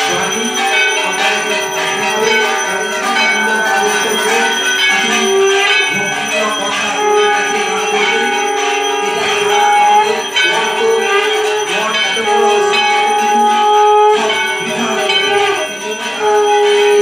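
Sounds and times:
hand bells ringing: 0:00.0 - 0:17.0.

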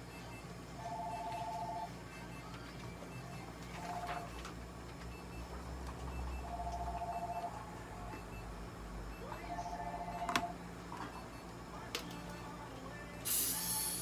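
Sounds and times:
electronic beeping: 0:00.0 - 0:04.5, 0:05.1 - 0:08.5, 0:09.1 - 0:11.6.

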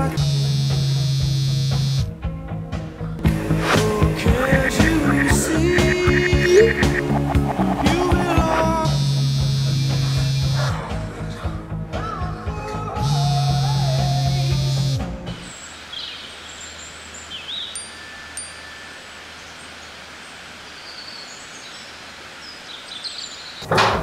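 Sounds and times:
phone vibrating on wooden table: 0:00.0 - 0:02.1, 0:08.9 - 0:10.7, 0:14.5 - 0:15.1
bird chirps: 0:15.4 - 0:23.7.

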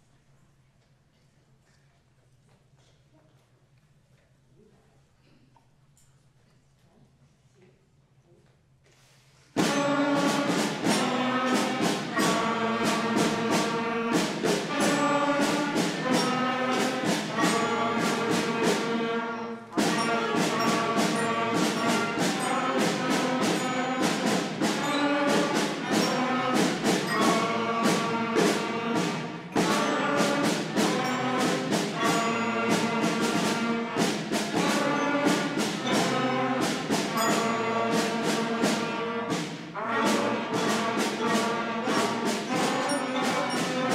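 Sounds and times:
beginner concert band playing: 0:09.6 - 0:43.9.

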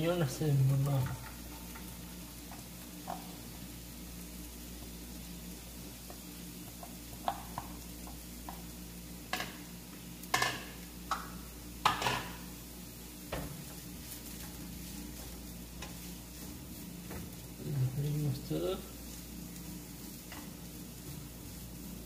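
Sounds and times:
light frying sizzle: 0:00.0 - 0:22.0
spatula scraping a frying pan: 0:13.3 - 0:22.0.

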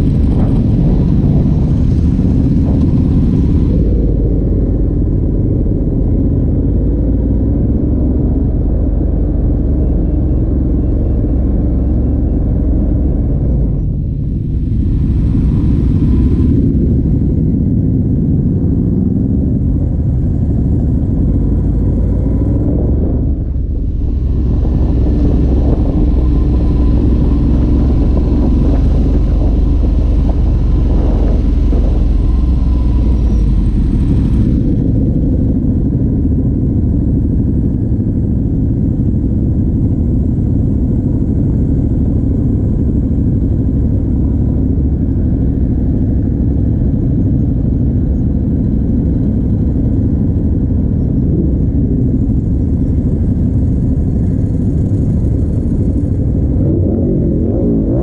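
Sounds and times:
motorcycle engine rumble: 0:00.0 - 0:58.0.

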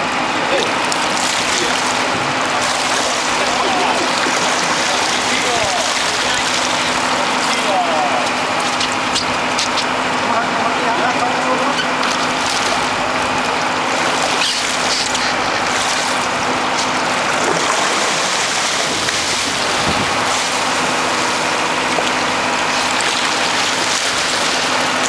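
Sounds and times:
boat engine running: 0:00.0 - 0:25.0
fish splashing: 0:00.0 - 0:25.0
wind and water rushing: 0:00.0 - 0:25.0.

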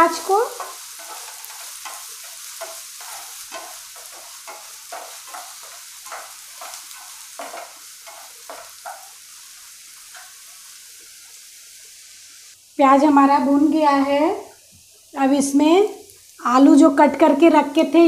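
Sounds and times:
onions sizzling in hot oil: 0:00.0 - 0:18.0
wooden spatula scraping a pan: 0:00.1 - 0:11.1.

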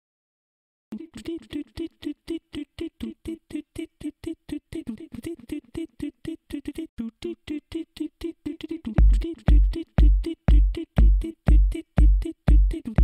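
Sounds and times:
staccato background music: 0:09.0 - 0:13.0.

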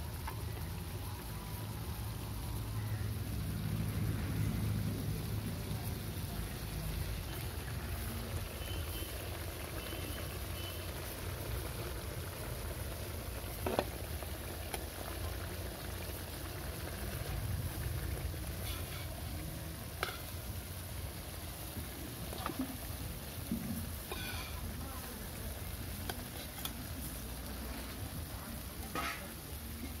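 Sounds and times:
fish sizzling in hot oil: 0:00.0 - 0:30.0
utensils clicking against pan: 0:26.0 - 0:26.9.

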